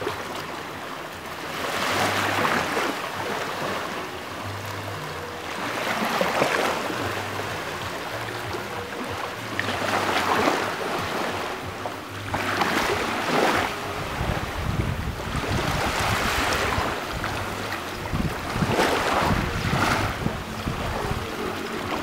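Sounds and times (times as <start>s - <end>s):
waves on pebble beach: 0.0s - 4.6s, 5.2s - 22.0s.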